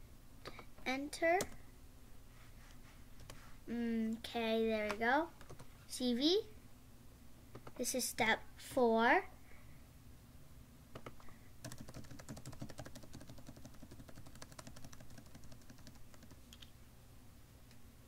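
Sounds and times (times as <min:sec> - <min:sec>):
keyboard keys clicking: 0:11.0 - 0:16.7.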